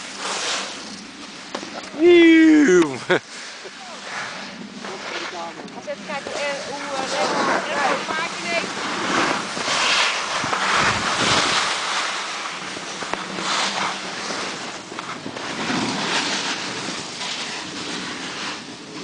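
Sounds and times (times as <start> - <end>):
sliding over packed snow: 0.0 - 19.0
wind rushing over microphone: 3.9 - 19.0.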